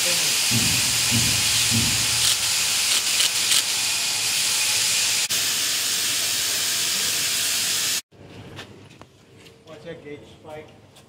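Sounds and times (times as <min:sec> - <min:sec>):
loud steady hiss: 0:00.0 - 0:08.0.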